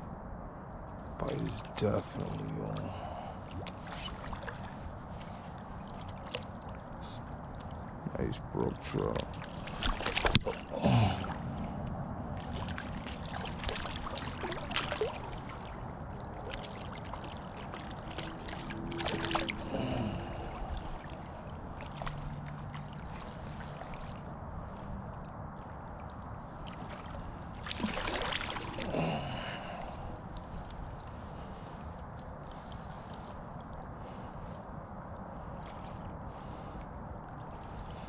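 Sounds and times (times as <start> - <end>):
stream water running: 1.1 - 38.0
fish splashing at surface: 26.8 - 29.0.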